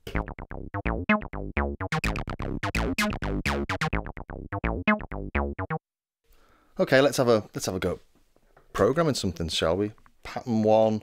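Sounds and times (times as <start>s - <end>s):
synthesizer acid bassline: 0.0s - 5.8s.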